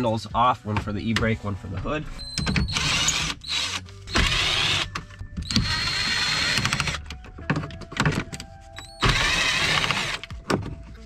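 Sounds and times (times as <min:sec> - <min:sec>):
cordless drill spinning out screws: 0:05.5 - 0:07.0, 0:09.0 - 0:10.2.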